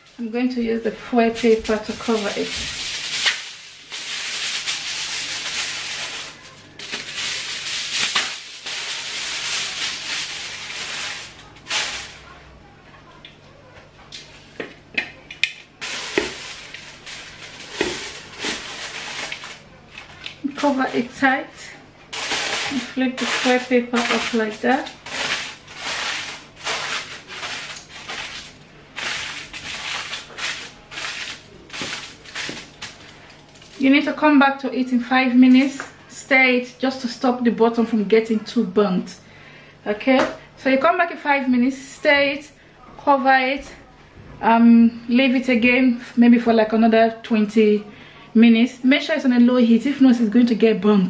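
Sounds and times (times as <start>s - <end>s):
aluminium foil crinkling: 0.0s - 12.4s, 15.3s - 21.4s, 22.1s - 34.2s.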